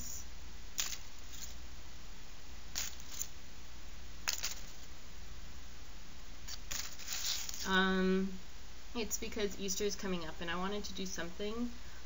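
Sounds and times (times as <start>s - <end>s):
low electrical hum: 0.0s - 12.0s
cardboard rustling: 2.8s - 3.3s, 4.3s - 4.9s, 6.5s - 7.7s.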